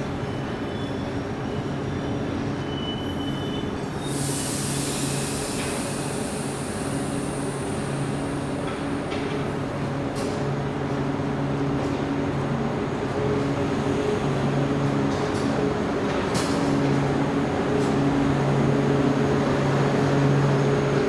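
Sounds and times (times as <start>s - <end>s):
train coaches rolling: 0.0s - 21.0s
high hiss: 4.0s - 8.6s.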